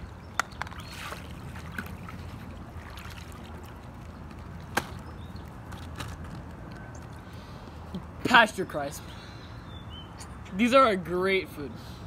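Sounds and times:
pool water sloshing: 0.6 - 5.2.

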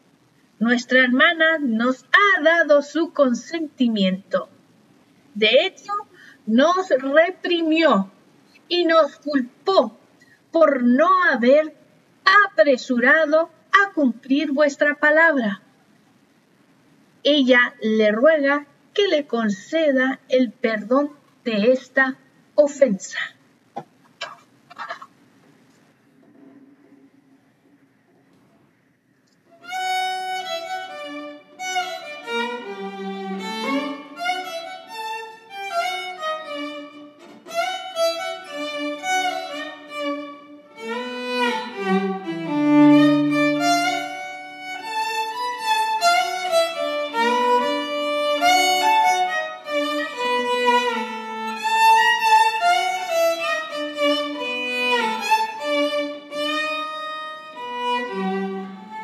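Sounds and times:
solo violin melody: 29.6 - 59.0.

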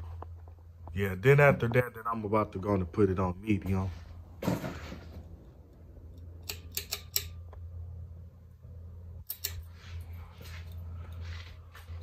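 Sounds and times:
ceiling fan motor humming: 0.0 - 12.0
pull-chain switch clicks: 6.4 - 7.4, 9.2 - 9.7.

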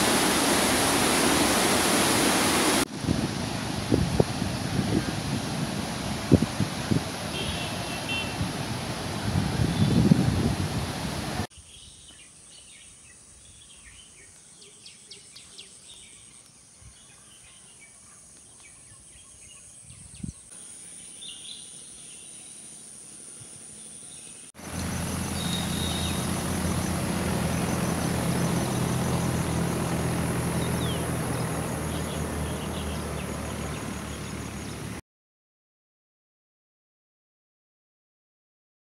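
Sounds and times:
steady noise with low hum: 0.0 - 11.5
birds chirping: 11.6 - 35.0
loud low rumbling: 24.6 - 35.0.

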